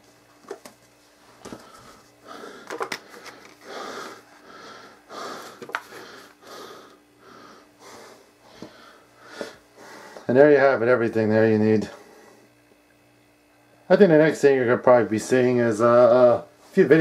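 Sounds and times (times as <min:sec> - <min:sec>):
soft breathing: 0:01.5 - 0:10.3, 0:11.9 - 0:12.6
packaging clicks and rustles: 0:02.6 - 0:03.6.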